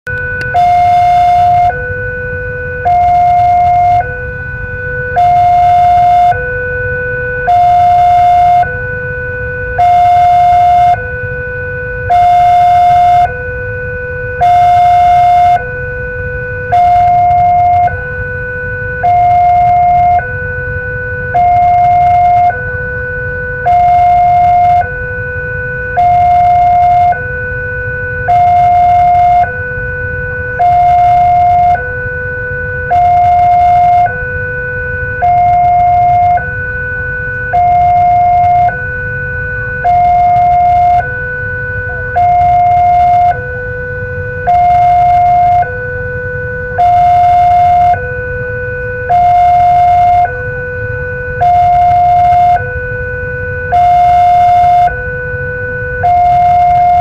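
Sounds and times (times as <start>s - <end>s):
low traffic rumble: 0.1s - 57.0s
two-tone crossing alarm: 0.1s - 57.0s.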